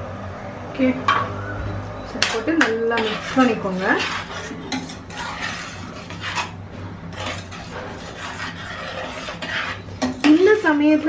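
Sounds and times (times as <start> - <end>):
spoon scraping metal pan: 2.2 - 10.8.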